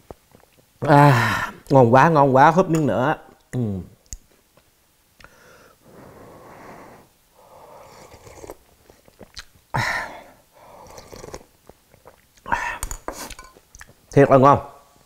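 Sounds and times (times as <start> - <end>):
man slurping soup: 5.8 - 9.4, 10.1 - 13.4.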